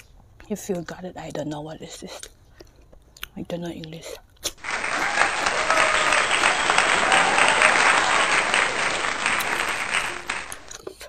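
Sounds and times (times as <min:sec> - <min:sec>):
crowd applause: 0:04.6 - 0:10.8.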